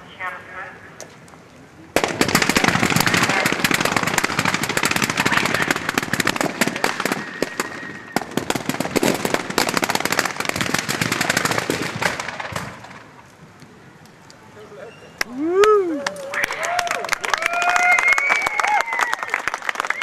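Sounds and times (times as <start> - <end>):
fireworks cracks and bangs: 1.9 - 13.8.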